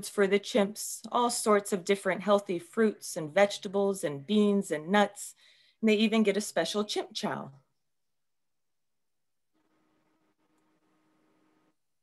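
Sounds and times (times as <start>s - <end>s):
faint steady hum: 9.6s - 12.0s.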